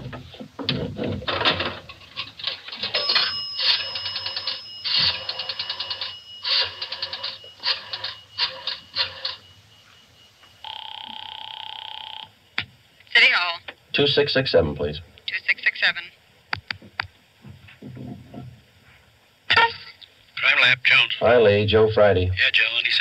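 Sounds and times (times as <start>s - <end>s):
phone ringing tone: 2.5s - 12.4s
steady high tone: 2.7s - 12.5s.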